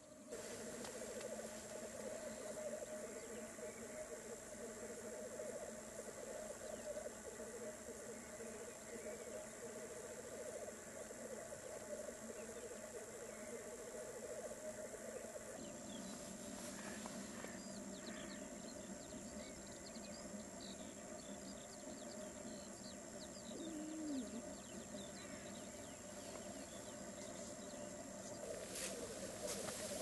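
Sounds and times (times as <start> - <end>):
grouse bubbling and cooing: 0.3 - 19.7, 23.2 - 30.0.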